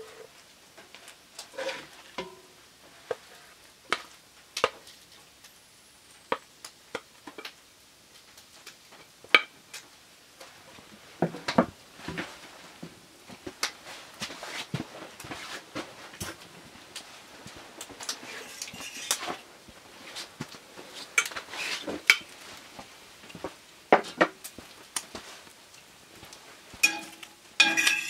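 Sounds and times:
spatula scraping cast iron pot: 1.5s - 2.4s, 18.1s - 19.4s, 26.8s - 28.0s.

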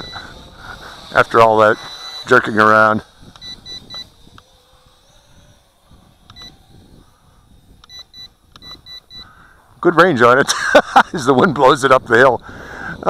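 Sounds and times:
short high-pitched beeps: 0.0s - 0.3s, 1.8s - 2.5s, 3.4s - 4.2s, 6.3s - 6.6s, 7.8s - 9.3s.

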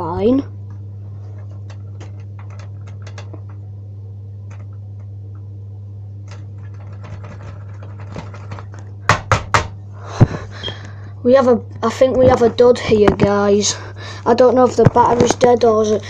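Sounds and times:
steady low hum: 0.0s - 16.0s
loud knocks: 9.1s - 9.8s.

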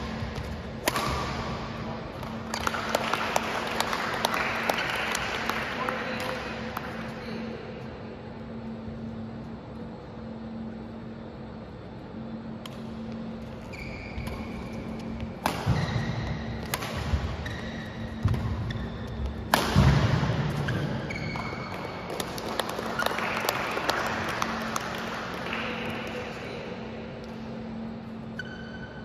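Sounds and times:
racket striking shuttlecock: 0.0s - 3.1s, 14.2s - 23.1s
shoes squeaking on court floor: 13.3s - 19.5s, 20.5s - 22.1s, 28.3s - 29.0s.

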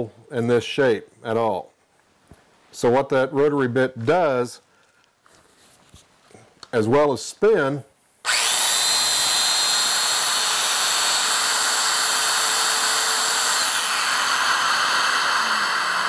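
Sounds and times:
power tool motor whining: 8.2s - 16.0s.

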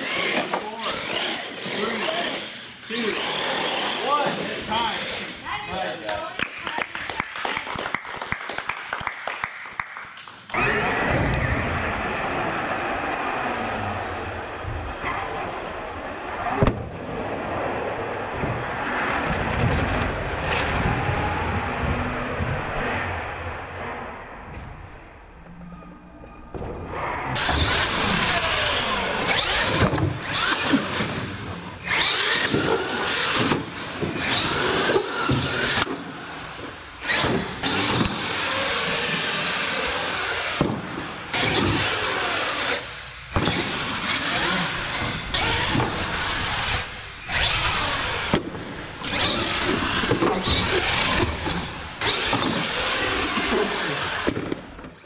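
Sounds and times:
electric motors whining: 0.0s - 5.8s, 27.4s - 55.0s.

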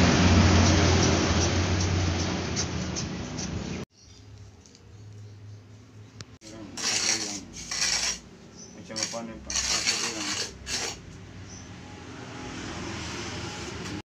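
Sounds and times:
trowel scraping wet mortar: 6.5s - 11.0s.

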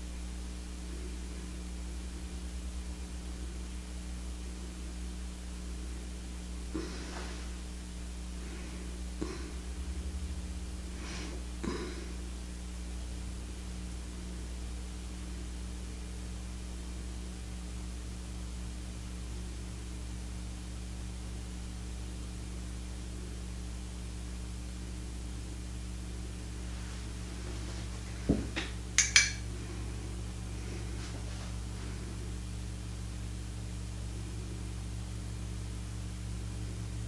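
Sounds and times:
low hum: 0.0s - 37.0s
soft knock: 28.3s - 28.7s
light clinks of hard object: 29.0s - 29.5s.

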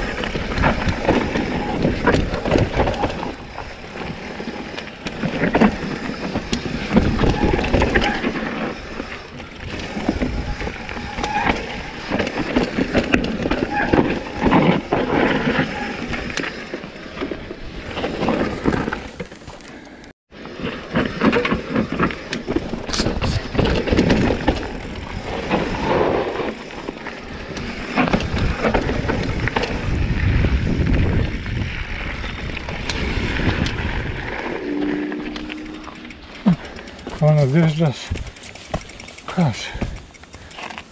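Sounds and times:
bike frame and chain rattling: 0.0s - 19.8s, 20.4s - 40.9s
bike tyres rumbling over rocks: 0.0s - 19.8s, 20.4s - 40.9s
wind noise on microphone: 6.0s - 16.4s, 27.3s - 36.6s.

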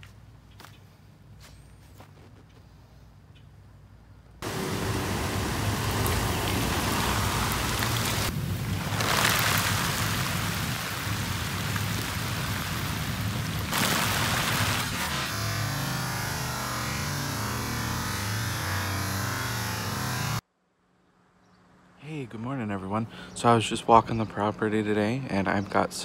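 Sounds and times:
rain on plants: 4.4s - 17.8s.

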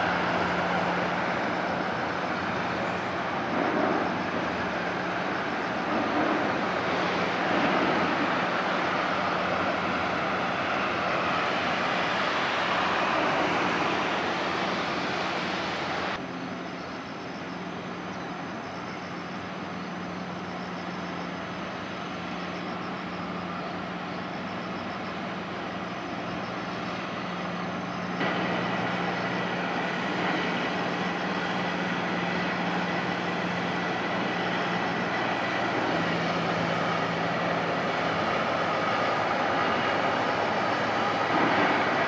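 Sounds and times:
low engine hum: 0.0s - 42.0s
mechanical traffic-like noise: 0.0s - 42.0s.

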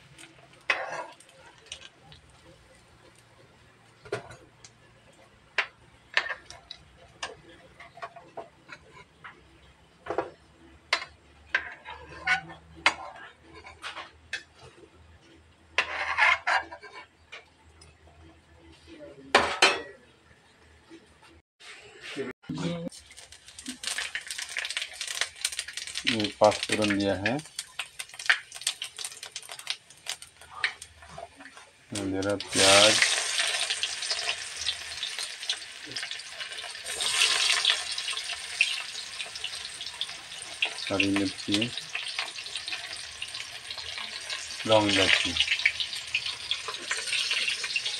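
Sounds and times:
metal cookware clattering: 19.3s - 20.1s
onions sizzling in hot oil: 22.9s - 47.9s.

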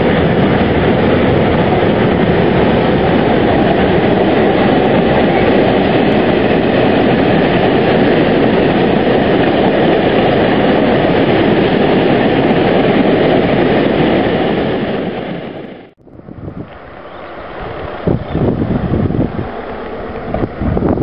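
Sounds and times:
freight train wheels clattering: 0.0s - 15.7s
wind buffeting microphone: 0.0s - 21.0s.

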